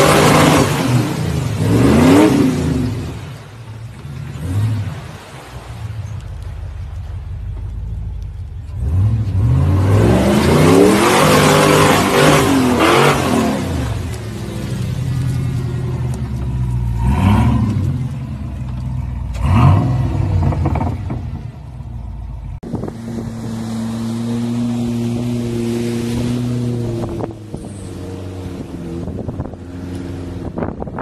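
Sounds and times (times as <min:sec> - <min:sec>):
engine revving hard: 0:00.0 - 0:03.0, 0:08.8 - 0:14.0, 0:17.0 - 0:18.0, 0:19.4 - 0:21.2
steady engine drone: 0:00.0 - 0:31.0
water washing under vehicle: 0:00.0 - 0:31.0.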